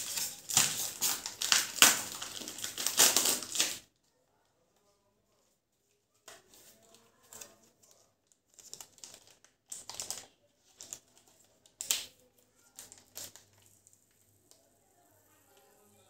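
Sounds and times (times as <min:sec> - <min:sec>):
plastic packet crinkling: 0:00.0 - 0:03.9, 0:06.8 - 0:14.3.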